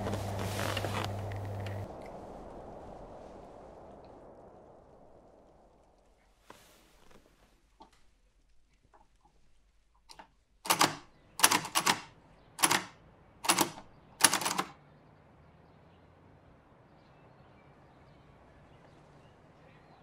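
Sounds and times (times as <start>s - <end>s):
faint background hiss: 0.0s - 14.3s
typewriter keys striking: 10.1s - 14.7s.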